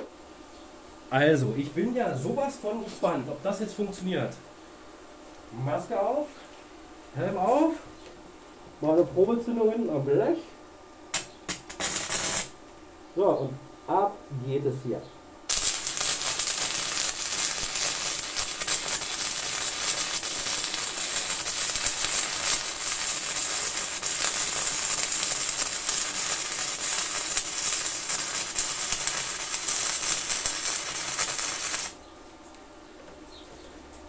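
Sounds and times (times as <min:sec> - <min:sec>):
welding arc crackling: 0:11.1 - 0:12.6, 0:15.5 - 0:32.0.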